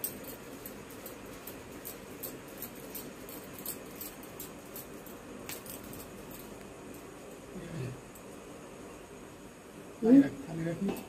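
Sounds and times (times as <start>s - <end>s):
bangles clinking: 0.0s - 7.5s.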